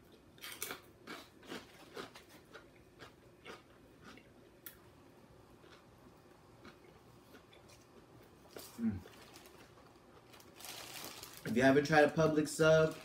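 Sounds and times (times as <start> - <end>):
chewing sandwich: 0.1 - 4.5, 5.6 - 5.9.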